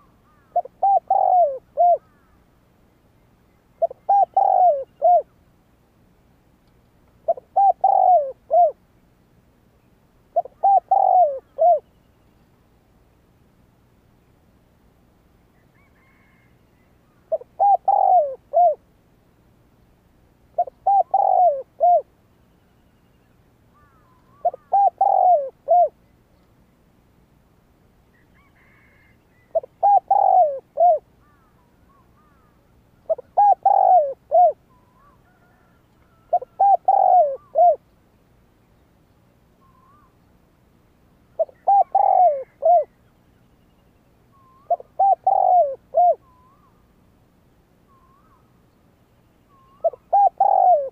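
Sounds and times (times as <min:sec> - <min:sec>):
dove cooing: 0:00.0 - 0:02.3, 0:03.8 - 0:05.3, 0:07.2 - 0:08.8, 0:10.3 - 0:11.9, 0:17.3 - 0:18.8, 0:20.6 - 0:22.1, 0:23.8 - 0:26.0, 0:28.4 - 0:37.8, 0:41.4 - 0:43.0, 0:44.3 - 0:46.8, 0:49.5 - 0:50.9.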